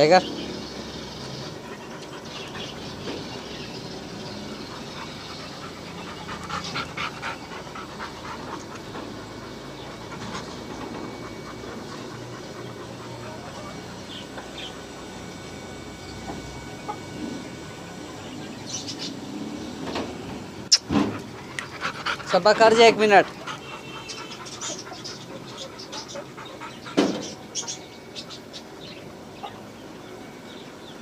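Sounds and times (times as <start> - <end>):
dog panting: 1.2 - 15.5, 20.8 - 29.6.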